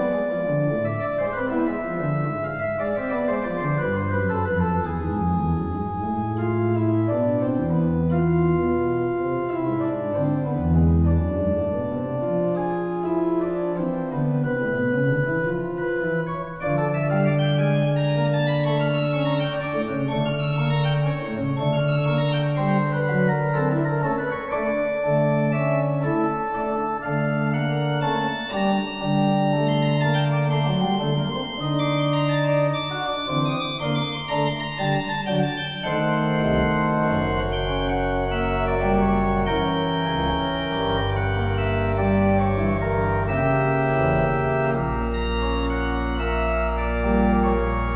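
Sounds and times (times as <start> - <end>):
pipe organ playing chords: 0.0 - 47.9
deep bass organ notes: 25.0 - 47.9.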